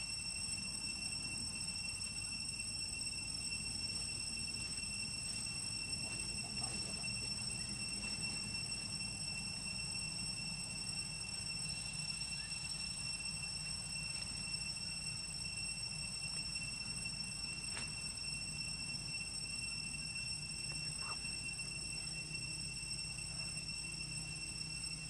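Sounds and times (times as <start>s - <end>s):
constant high-pitched whine: 0.0s - 25.0s.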